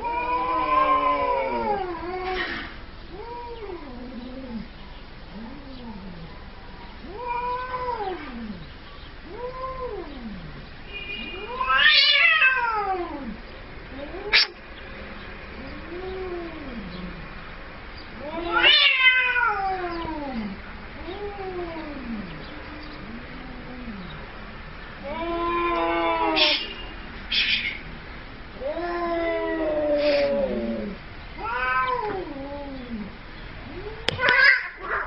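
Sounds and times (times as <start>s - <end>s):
cat meowing: 0.0s - 4.6s, 7.0s - 8.6s, 11.2s - 14.6s, 18.1s - 24.2s, 25.0s - 26.8s, 28.5s - 35.0s.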